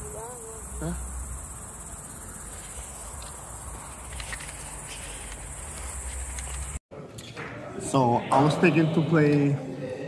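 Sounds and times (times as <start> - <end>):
crickets chirring: 0.0 - 6.8.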